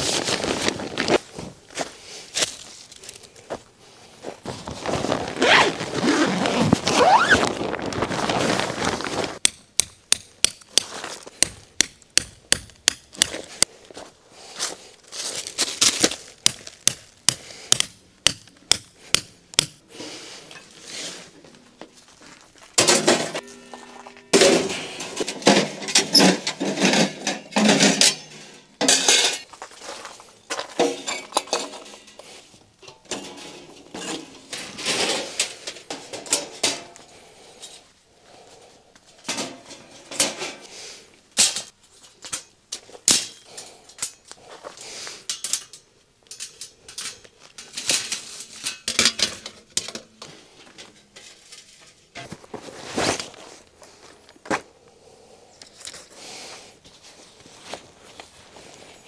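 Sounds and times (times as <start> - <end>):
metal camp gear clanking: 22.7 - 29.5, 30.5 - 37.8, 39.2 - 40.7, 45.2 - 53.5.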